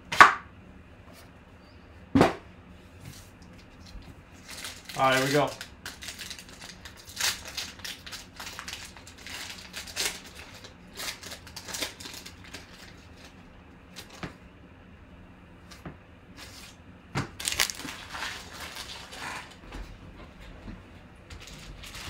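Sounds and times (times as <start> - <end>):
plastic wrapper crinkling: 3.5 - 13.4, 17.4 - 19.6, 21.4 - 22.0
cards rustling: 3.9 - 13.4, 17.4 - 19.5.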